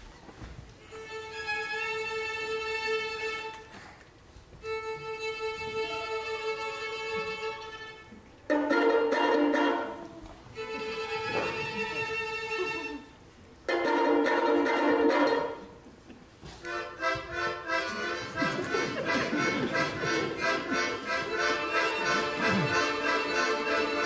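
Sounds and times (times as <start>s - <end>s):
folk band playing: 4.5s - 24.0s.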